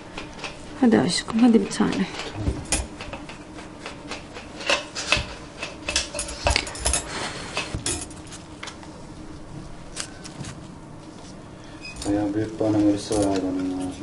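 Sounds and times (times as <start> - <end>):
metal instruments clinking: 12.0 - 13.9.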